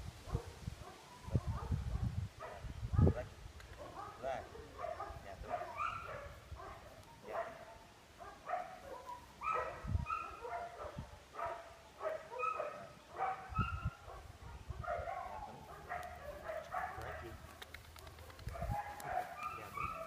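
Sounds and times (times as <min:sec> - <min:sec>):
dog yapping: 0:04.8 - 0:14.2.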